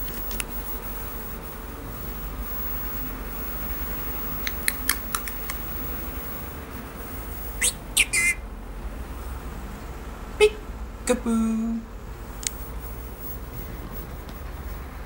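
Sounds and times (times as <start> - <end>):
faint clicks: 4.4 - 5.6
parrot talking: 7.6 - 8.4, 10.4 - 11.3.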